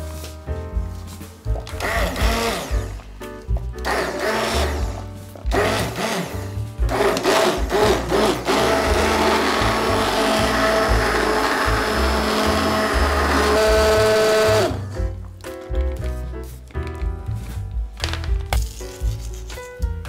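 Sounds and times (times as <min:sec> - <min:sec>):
immersion blender whirring: 0:01.8 - 0:02.9, 0:03.8 - 0:15.0.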